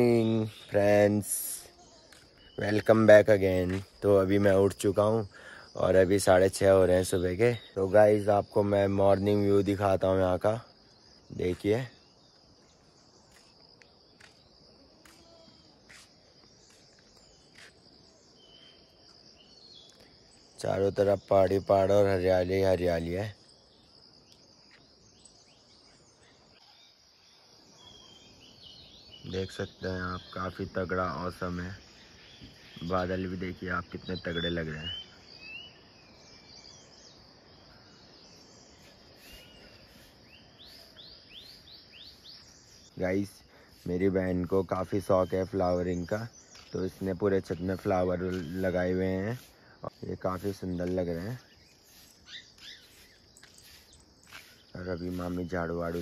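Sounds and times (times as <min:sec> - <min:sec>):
faint chirp: 0:00.0 - 0:56.0
high insect hum: 0:00.0 - 0:56.0
high-pitched insect drone: 0:29.3 - 0:56.0
bird whistling and chirping: 0:51.5 - 0:54.6.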